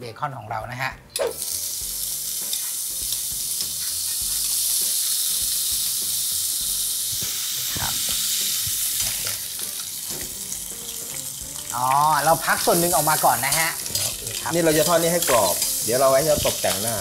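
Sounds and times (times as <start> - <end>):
bacon sizzling in a frying pan: 1.2 - 17.0
metal tongs clicking on pan: 9.0 - 16.9.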